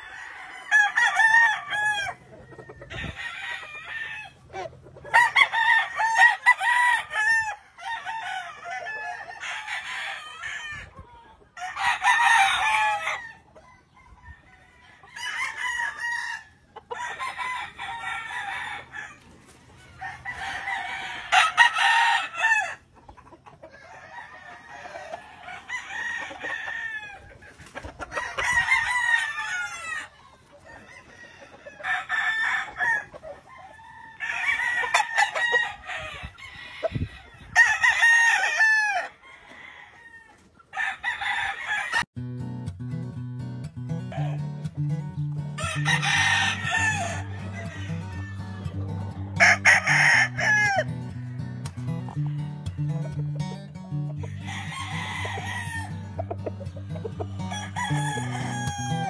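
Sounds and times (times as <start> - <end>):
roosters crowing: 0.0 - 42.1, 44.1 - 44.6, 45.5 - 59.0.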